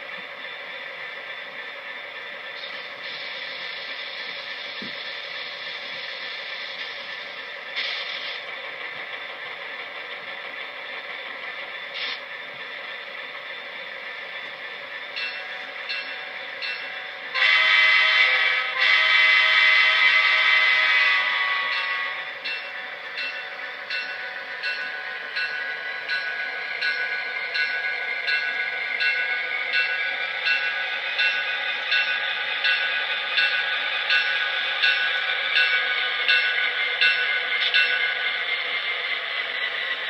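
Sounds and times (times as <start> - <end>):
locomotive horn blast: 17.3 - 22.3.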